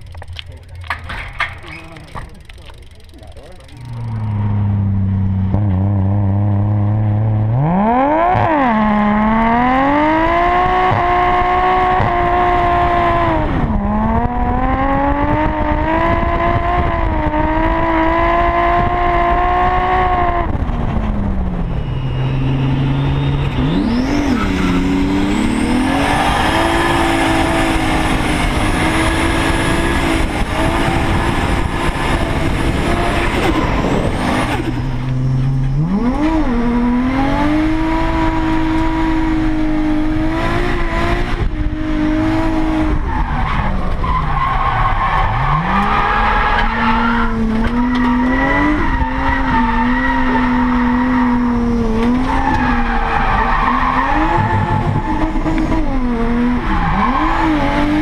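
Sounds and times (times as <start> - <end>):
tyres squealing: 0.7 - 4.4
car engine revving hard: 4.0 - 20.7, 21.7 - 58.0.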